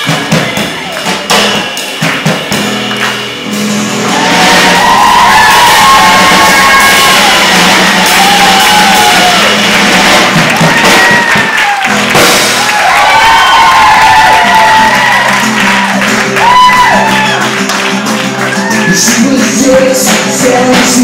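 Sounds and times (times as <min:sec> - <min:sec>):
acoustic guitar: 0:00.0 - 0:21.0
voices shouting and whooping: 0:04.1 - 0:09.6, 0:12.6 - 0:17.5.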